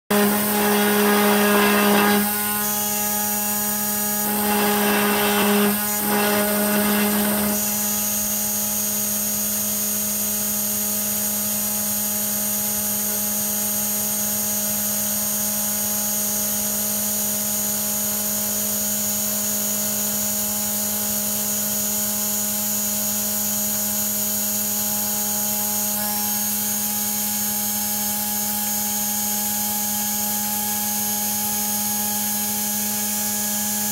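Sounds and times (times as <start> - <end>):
rough metal cutting noise: 0.1 - 9.1, 24.0 - 29.6
spindle running with high whine: 0.1 - 17.3, 22.1 - 33.9.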